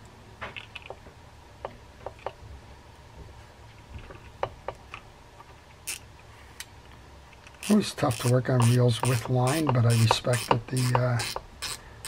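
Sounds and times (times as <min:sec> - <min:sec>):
fishing reel parts clicking: 0:05.8 - 0:06.0, 0:07.4 - 0:11.8.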